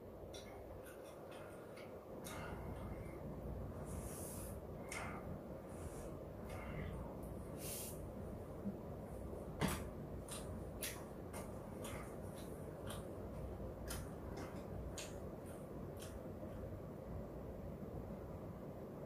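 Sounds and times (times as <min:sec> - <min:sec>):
wet chewing clicks and smacks: 0:10.2 - 0:16.5.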